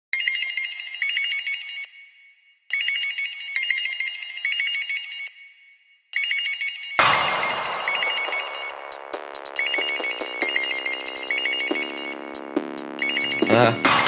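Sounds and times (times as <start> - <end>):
high trilling melody: 7.0 - 14.0.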